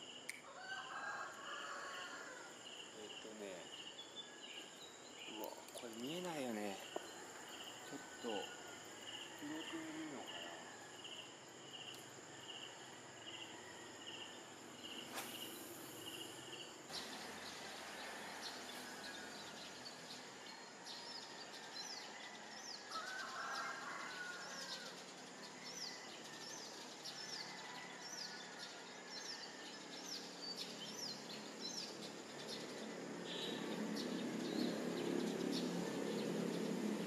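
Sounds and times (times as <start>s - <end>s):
crickets chirping: 0.0s - 37.0s
short hiss: 15.1s - 16.0s.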